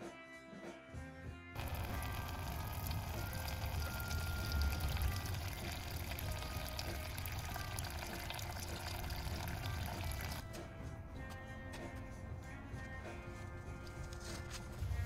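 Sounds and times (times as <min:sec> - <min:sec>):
fluid splashing into a bucket: 0:01.6 - 0:10.4.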